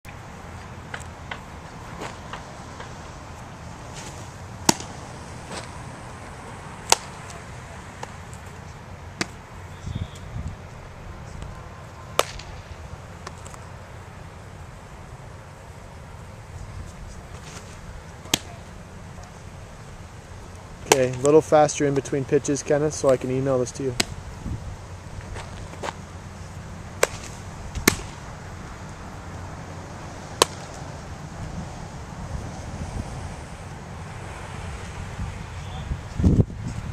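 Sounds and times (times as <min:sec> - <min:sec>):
low wind rumble: 0:00.1 - 0:36.9
baseball popping into glove: 0:04.0 - 0:05.7, 0:27.0 - 0:28.2, 0:30.4 - 0:30.8.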